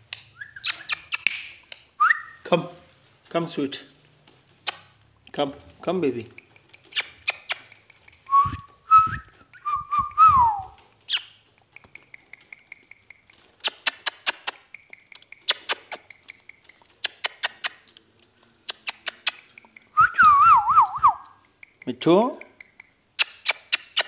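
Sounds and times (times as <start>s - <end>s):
parakeet sharp clicks: 0.1s - 1.8s, 6.4s - 8.2s, 11.1s - 17.8s, 18.7s - 20.0s, 22.5s - 24.0s
parakeet whistling: 0.4s - 1.3s.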